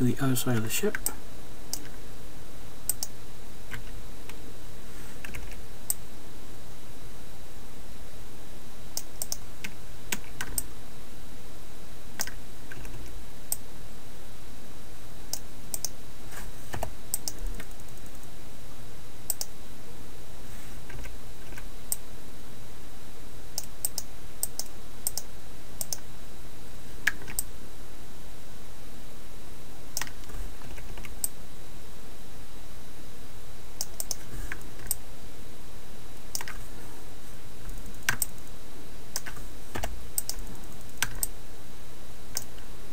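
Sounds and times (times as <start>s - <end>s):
background hiss and low hum: 0.0s - 42.9s
keyboard and mouse clicks: 2.9s - 3.1s, 9.0s - 10.7s, 12.2s - 13.1s, 15.3s - 16.0s, 16.7s - 18.2s, 23.6s - 26.0s, 30.0s - 31.3s, 33.8s - 35.0s, 36.2s - 36.6s, 37.6s - 38.5s, 39.2s - 41.3s, 42.3s - 42.6s.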